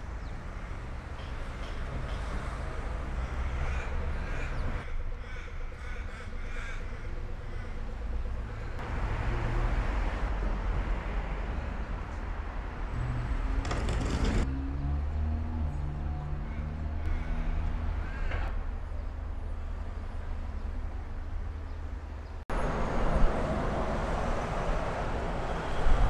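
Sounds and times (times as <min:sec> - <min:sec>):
street traffic rumble: 0:00.0 - 0:26.0
crow cawing: 0:03.1 - 0:08.8, 0:16.5 - 0:18.5.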